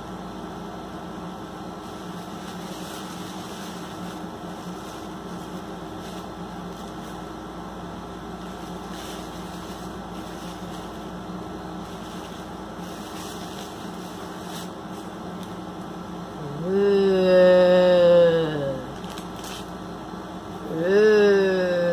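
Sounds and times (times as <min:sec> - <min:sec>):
low machine hum and hiss: 0:00.0 - 0:21.9
tissue paper rustling: 0:01.8 - 0:07.5, 0:08.3 - 0:15.6, 0:19.0 - 0:19.8.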